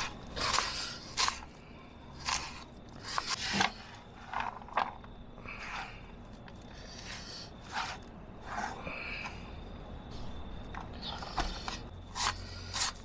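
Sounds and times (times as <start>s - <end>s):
knife cutting onion: 0.0s - 3.7s, 11.2s - 13.0s.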